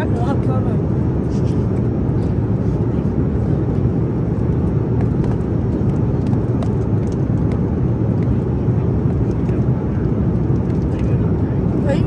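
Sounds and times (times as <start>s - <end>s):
vehicle rumble inside cabin: 0.0s - 12.0s.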